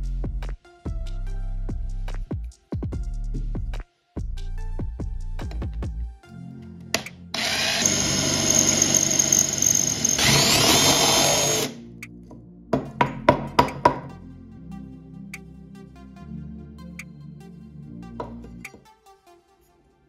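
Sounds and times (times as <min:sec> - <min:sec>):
cordless drill whining through steel: 0:07.4 - 0:11.8
sharp knocks: 0:12.8 - 0:14.1.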